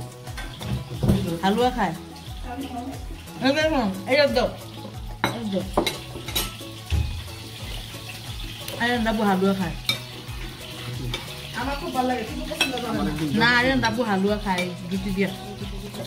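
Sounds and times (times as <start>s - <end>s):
metal spoons clinking on plates: 5.2s - 6.8s, 12.5s - 13.6s, 14.4s - 14.8s.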